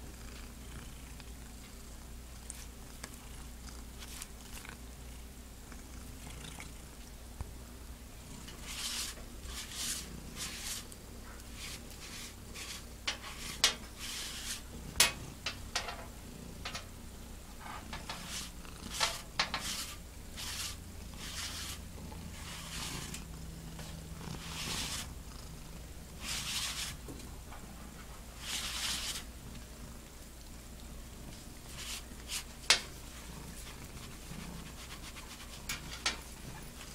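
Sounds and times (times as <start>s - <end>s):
cat purring: 0.0s - 7.1s, 14.3s - 19.4s, 20.5s - 26.6s, 29.4s - 36.9s
lint roller crackling on fur: 8.4s - 15.9s, 28.3s - 36.9s.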